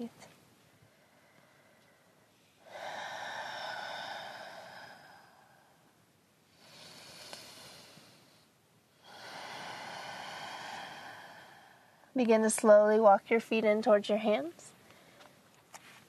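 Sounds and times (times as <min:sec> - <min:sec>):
slow deep breathing: 0:00.6 - 0:12.2, 0:14.8 - 0:15.5.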